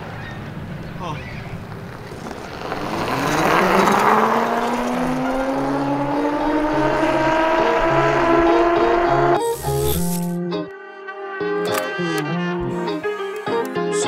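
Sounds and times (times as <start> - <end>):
motorbike passing by: 0.0 - 10.4
electric motor whining: 2.7 - 10.4.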